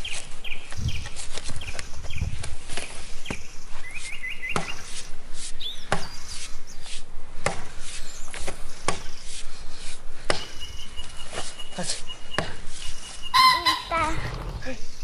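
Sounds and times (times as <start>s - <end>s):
wooden branch being chopped: 4.5s - 5.0s, 5.9s - 6.2s, 7.4s - 7.8s.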